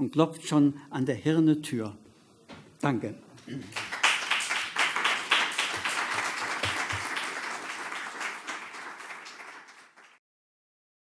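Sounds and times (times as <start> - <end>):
audience applauding: 3.6 - 10.2.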